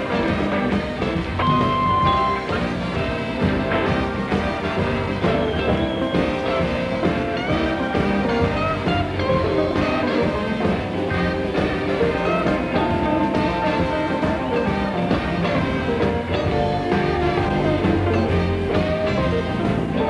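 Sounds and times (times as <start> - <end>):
electric guitar: 0.0 - 20.0
live blues band playing: 0.0 - 20.0.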